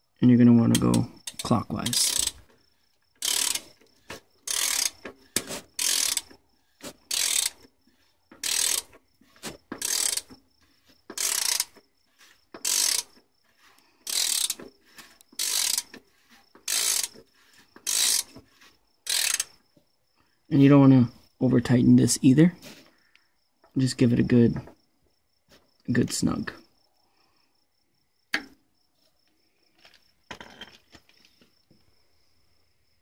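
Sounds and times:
ratchet clicking: 0:00.7 - 0:02.6, 0:03.2 - 0:06.4, 0:07.1 - 0:07.7, 0:08.3 - 0:09.0, 0:09.7 - 0:10.3, 0:11.1 - 0:11.8, 0:12.5 - 0:13.2, 0:14.0 - 0:16.0, 0:16.6 - 0:17.2, 0:17.8 - 0:18.4, 0:19.0 - 0:19.6.

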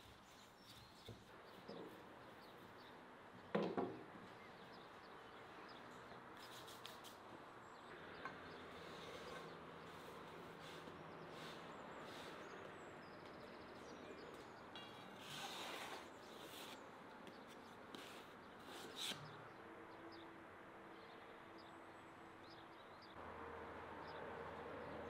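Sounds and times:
distant bird chirps: 0:07.6 - 0:20.3.

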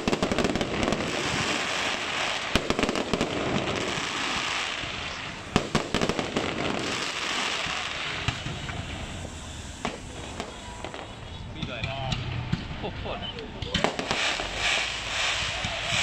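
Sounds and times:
fireworks bangs: 0:00.0 - 0:16.0
fireworks crackling: 0:00.0 - 0:16.0.

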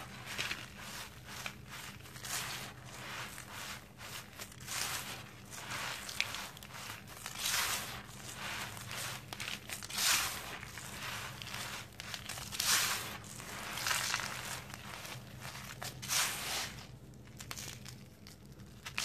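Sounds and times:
fingers rubbing gritty sand mix: 0:00.0 - 0:16.9
small crackles: 0:17.1 - 0:19.0.

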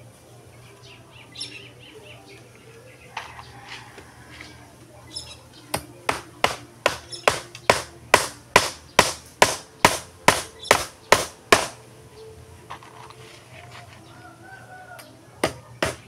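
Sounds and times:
hammer hitting nail into wood: 0:05.8 - 0:11.8, 0:15.4 - 0:16.0.

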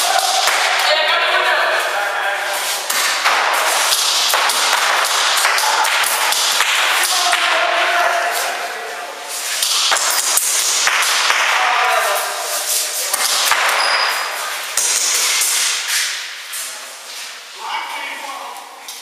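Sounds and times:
pellets knocking on hard surfaces: 0:02.9 - 0:07.5, 0:09.6 - 0:11.6.

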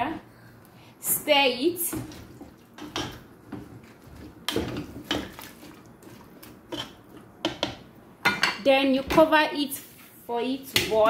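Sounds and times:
spatula stirring in a pot: 0:01.8 - 0:07.9
spatula knocking and scraping pot: 0:01.8 - 0:09.4.

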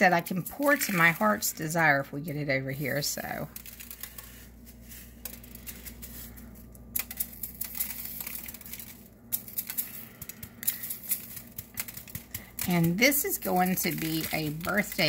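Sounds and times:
low steady hum: 0:00.0 - 0:15.0
sprinkles pattering onto cake: 0:00.0 - 0:15.0.

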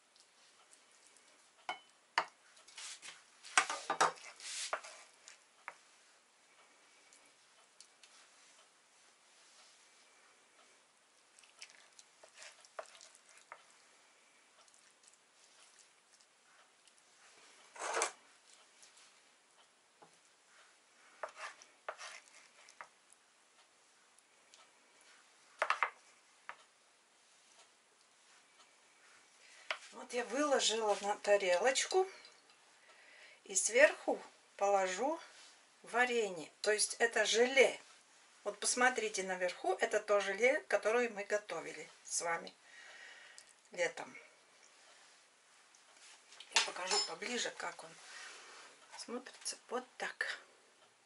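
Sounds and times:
soft squelches of food: 0:00.0 - 0:01.7, 0:02.3 - 0:33.0, 0:43.1 - 0:46.6
spoon clinking against pan: 0:01.7 - 0:02.3
spoons scraping baking tray: 0:02.7 - 0:05.2, 0:17.7 - 0:18.2, 0:21.1 - 0:22.9
spatula scraping metal tray: 0:17.8 - 0:18.2.

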